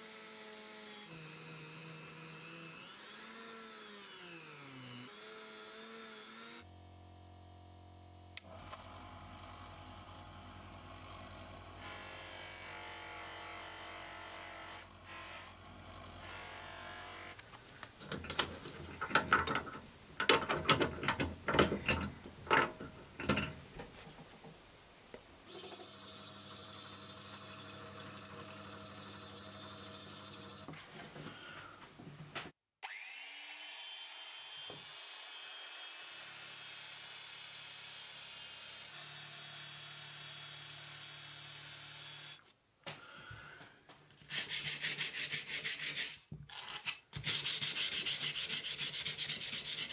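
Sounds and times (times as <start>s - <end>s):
metallic clicks and clanks: 17.9s - 24.6s
bench grinder running: 25.5s - 30.7s.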